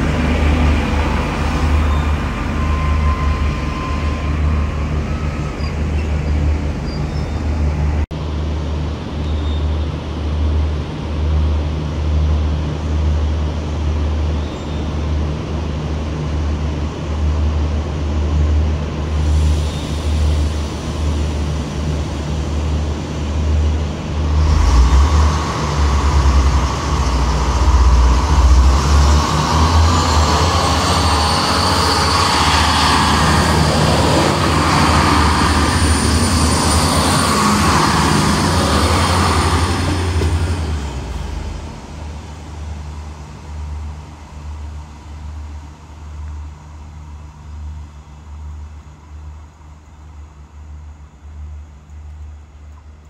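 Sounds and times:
diesel railcar humming: 0:00.0 - 0:53.0
thin high whine: 0:19.2 - 0:42.1.

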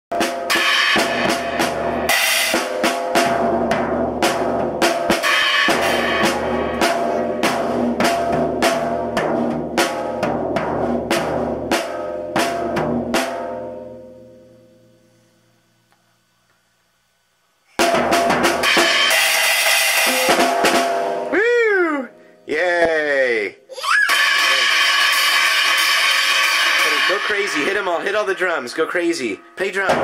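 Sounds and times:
child banging on drum kit: 0:00.1 - 0:13.8, 0:17.8 - 0:21.4, 0:24.1 - 0:30.0
cymbal crashes: 0:00.2 - 0:10.2, 0:17.8 - 0:21.4, 0:24.1 - 0:30.0.

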